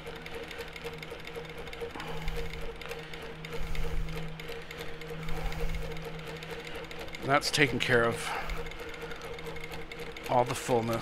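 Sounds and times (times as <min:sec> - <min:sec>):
quilting machine stitching: 0:00.0 - 0:11.0.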